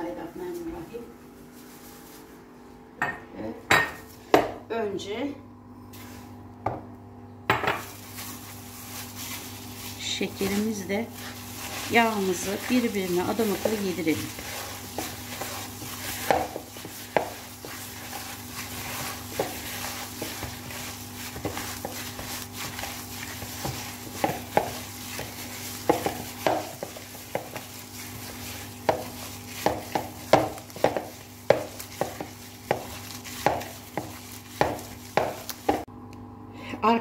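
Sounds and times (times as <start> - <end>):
plastic glove rustling: 0.2 - 2.7, 7.8 - 35.9
wet squishing in a bowl: 7.9 - 35.9.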